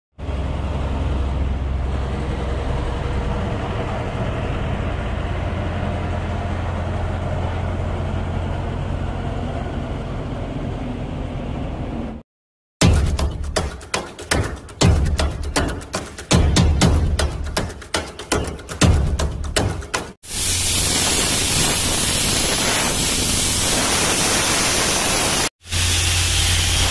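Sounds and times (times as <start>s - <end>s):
road roller diesel engine rumble: 0.2s - 12.1s.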